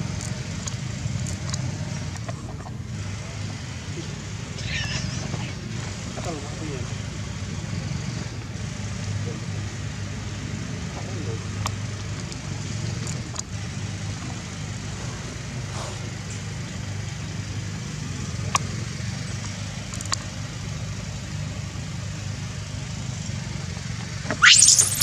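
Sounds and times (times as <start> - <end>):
baby monkey screeching: 4.6 - 5.2, 24.4 - 25.0.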